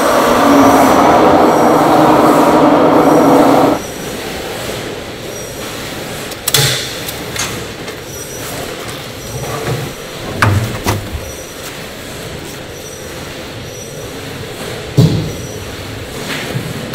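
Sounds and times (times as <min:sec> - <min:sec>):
steady factory noise: 0:00.0 - 0:16.9
knocks and clanks of basket and lid: 0:09.6 - 0:11.3.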